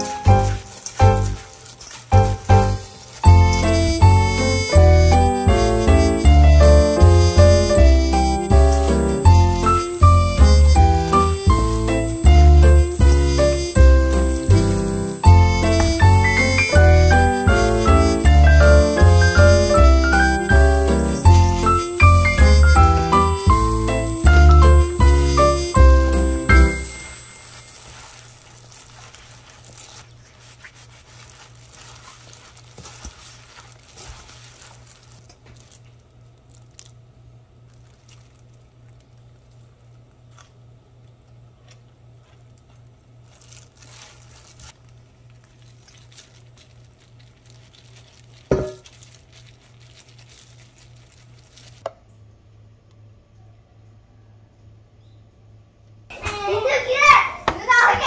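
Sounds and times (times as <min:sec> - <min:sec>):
wet squishing: 0:00.0 - 0:03.8, 0:27.6 - 0:36.9, 0:43.3 - 0:51.8
plastic glove crinkling: 0:00.0 - 0:52.0.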